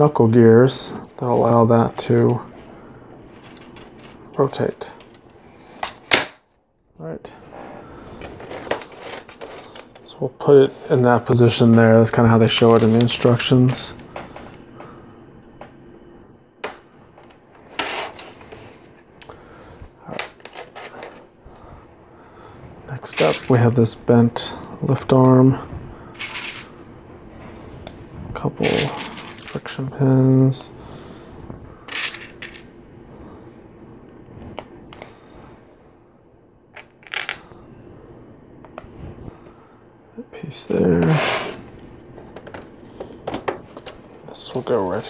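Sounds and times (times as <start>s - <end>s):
rustle of plastic pieces: 28.6s - 29.7s.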